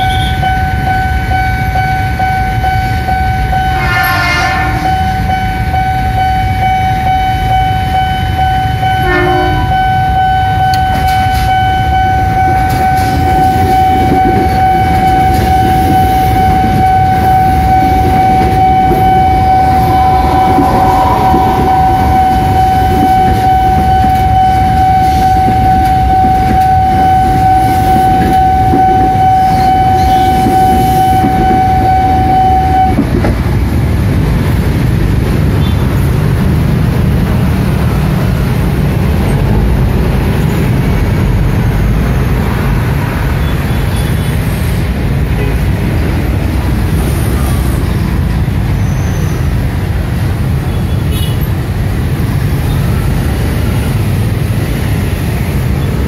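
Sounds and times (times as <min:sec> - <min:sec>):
level crossing warning tone: 0:00.0 - 0:33.2
electric train rumbling: 0:00.0 - 0:56.0.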